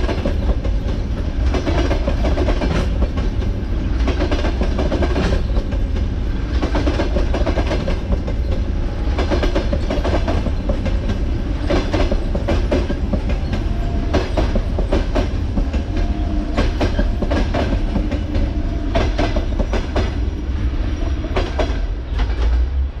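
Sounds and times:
train wheels clattering over rail joints: 0:00.0 - 0:20.4, 0:21.2 - 0:22.9.

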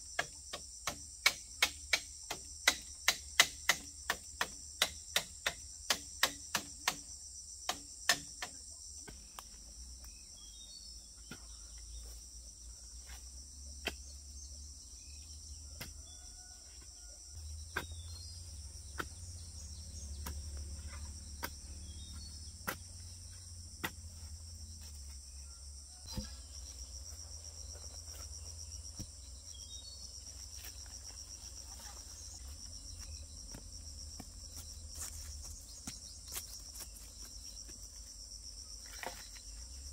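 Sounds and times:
high-pitched insect chorus: 0:00.0 - 0:39.9.

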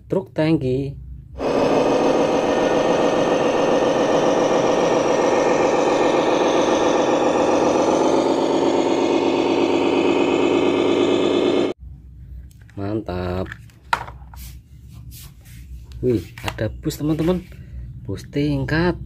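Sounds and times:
model truck diesel engine running: 0:01.4 - 0:11.8.

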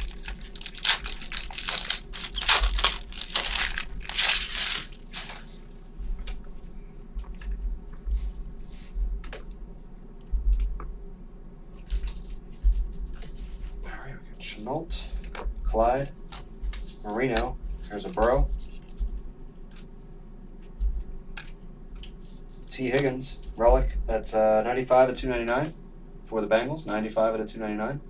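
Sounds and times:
wrappers tearing and crinkling: 0:00.0 - 0:05.6.

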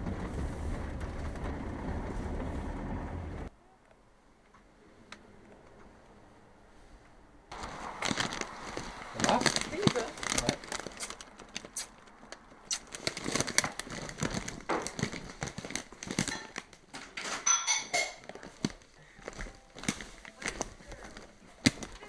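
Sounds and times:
handheld camera rustling: 0:07.5 - 0:16.9, 0:18.2 - 0:22.0.

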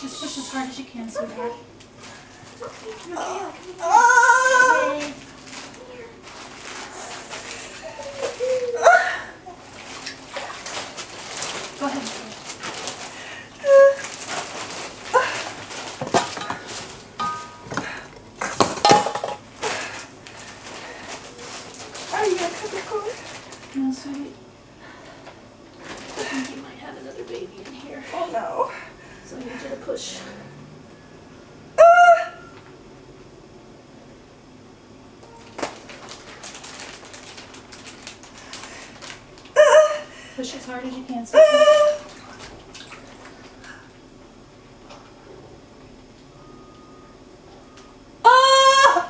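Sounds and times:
squeaky whimpering cries: 0:00.0 - 0:01.6, 0:41.4 - 0:42.1
high-pitched cry: 0:03.2 - 0:05.0, 0:31.8 - 0:32.4, 0:41.3 - 0:42.1, 0:48.2 - 0:49.0
water splashing in a pool: 0:42.1 - 0:43.4.

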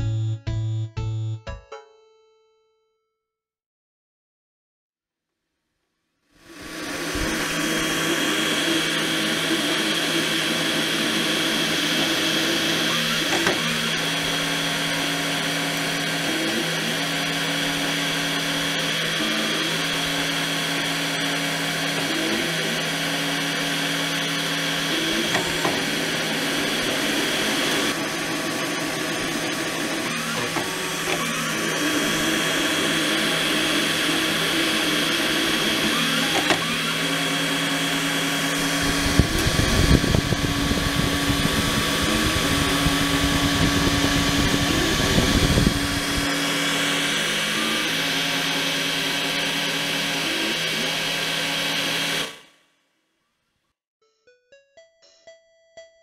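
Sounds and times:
stepper motors whining: 0:06.4 - 0:52.5
fan air rumble on microphone: 0:38.6 - 0:46.3.

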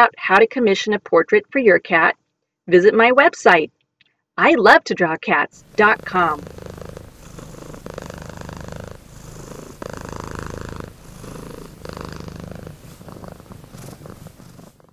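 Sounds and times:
cat purring: 0:05.6 - 0:14.9.

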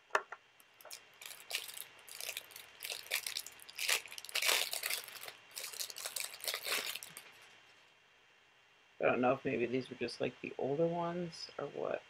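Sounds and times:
plastic packaging crinkling: 0:00.6 - 0:07.5.

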